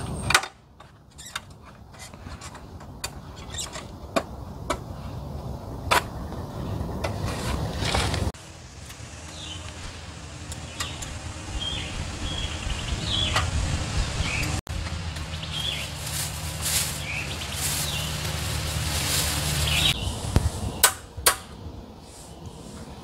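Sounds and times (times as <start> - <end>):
steady low rumble: 3.9 - 23.0
small birds chirping: 9.2 - 23.0
plastic bag crinkling: 15.6 - 20.0.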